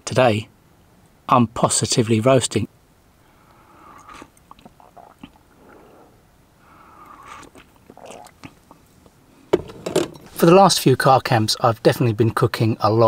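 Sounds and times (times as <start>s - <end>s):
slurping sips from a mug: 3.8s - 6.2s, 6.9s - 8.8s.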